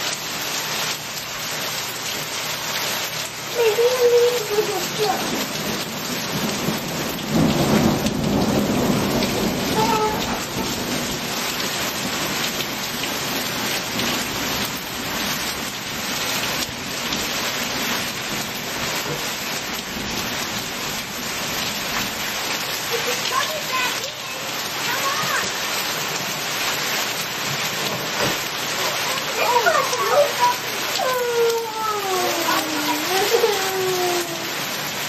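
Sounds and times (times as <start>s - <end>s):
heavy rain: 0.0s - 35.0s
thunder rumble: 4.6s - 15.5s.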